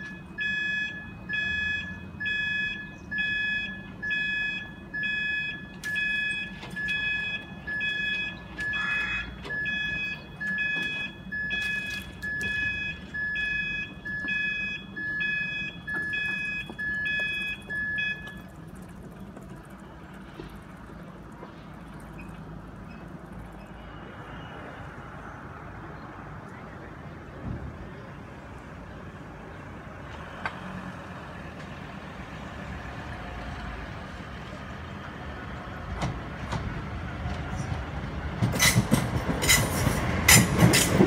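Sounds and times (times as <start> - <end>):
level crossing alarm beeps: 0.0 - 18.5.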